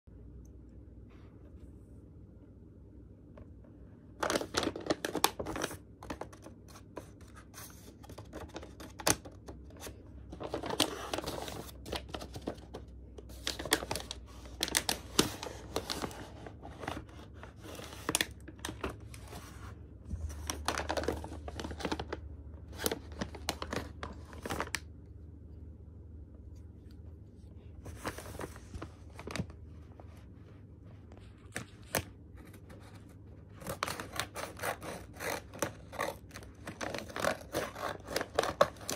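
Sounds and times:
paper crinkling and tearing: 4.2 - 19.6, 20.2 - 24.8, 31.1 - 38.9.

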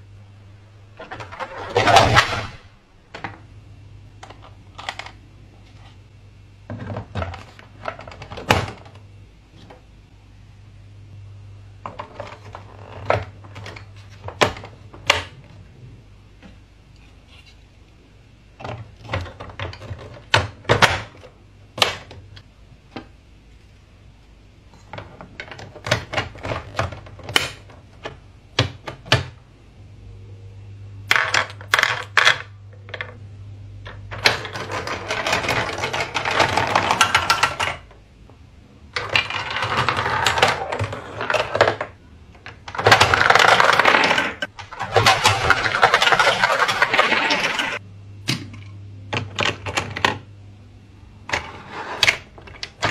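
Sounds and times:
plastic balls rattling down ramps: 1.0 - 3.4, 6.7 - 9.0, 11.8 - 15.5, 18.5 - 22.4, 24.8 - 29.4, 31.1 - 33.2, 33.9 - 37.9, 38.9 - 47.8
plastic track pieces clicking: 33.9 - 37.8, 39.0 - 47.8.

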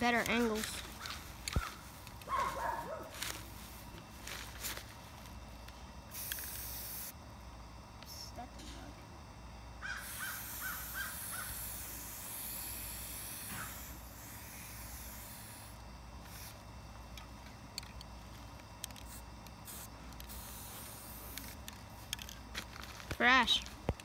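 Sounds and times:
spray-paint can hissing: 6.1 - 7.2, 10.0 - 16.6, 18.9 - 22.3
bird calling: 9.8 - 11.6.

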